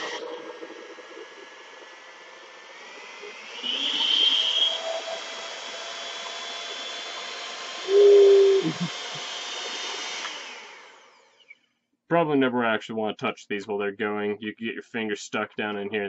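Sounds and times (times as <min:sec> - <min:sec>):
hand mixer motor whining: 0:00.0 - 0:11.6.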